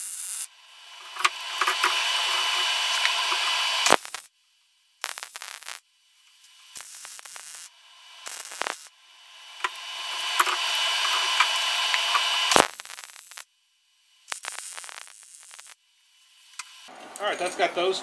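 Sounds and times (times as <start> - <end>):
arc welding crackling hiss: 0.0 - 4.3, 5.0 - 13.5, 14.1 - 16.9.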